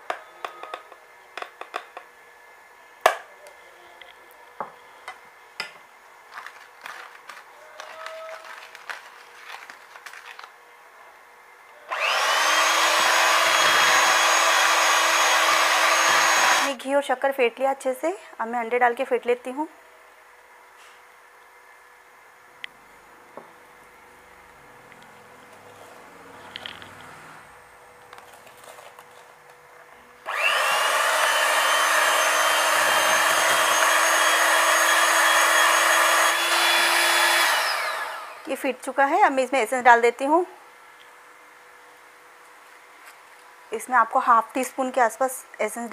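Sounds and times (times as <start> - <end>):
electric hand mixer whining: 11.9 - 16.8, 30.3 - 38.5.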